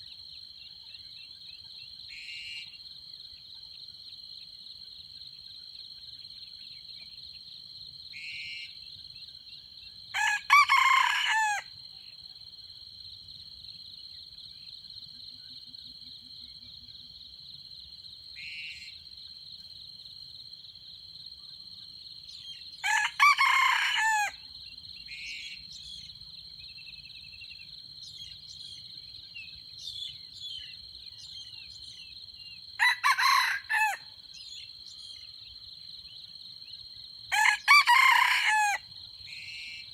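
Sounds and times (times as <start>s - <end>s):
rooster crowing: 10.1s - 11.7s, 22.8s - 24.4s, 32.8s - 34.2s, 37.3s - 38.9s.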